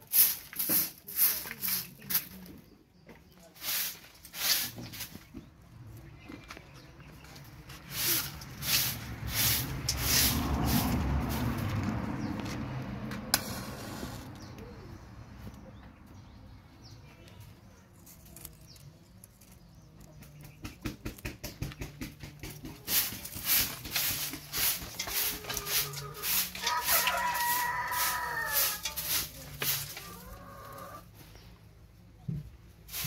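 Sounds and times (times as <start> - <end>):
rooster crowing: 25.6 - 28.8.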